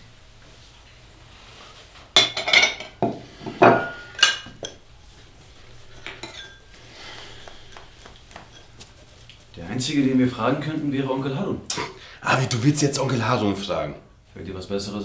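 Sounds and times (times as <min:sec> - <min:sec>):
plate wiped with dish towel: 0:00.5 - 0:10.9
plates clinking and clattering: 0:02.2 - 0:04.8, 0:05.9 - 0:06.8.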